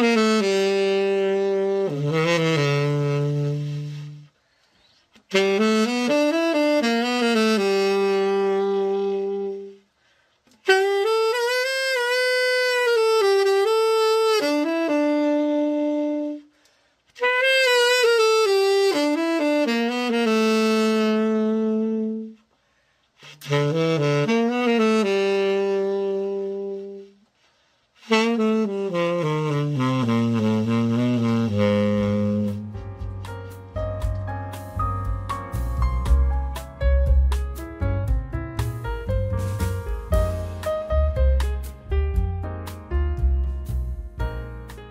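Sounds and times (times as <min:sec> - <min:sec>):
tenor saxophone playing: 0:00.0 - 0:22.6, 0:23.2 - 0:37.2, 0:39.0 - 0:42.8
breaths: 0:04.3 - 0:05.2, 0:09.8 - 0:10.6, 0:16.5 - 0:17.2, 0:22.4 - 0:23.4, 0:27.2 - 0:28.1.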